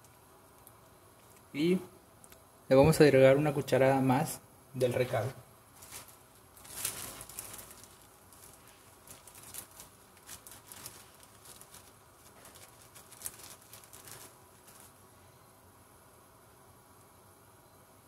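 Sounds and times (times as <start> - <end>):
plastic bag crinkling: 5.7 - 15.1.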